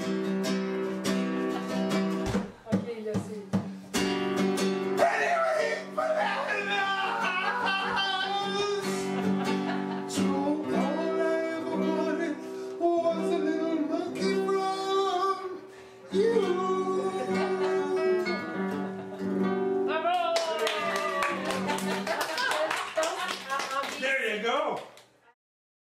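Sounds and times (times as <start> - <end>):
guitar: 0.0 - 24.0
man singing: 5.0 - 9.4, 10.1 - 18.6.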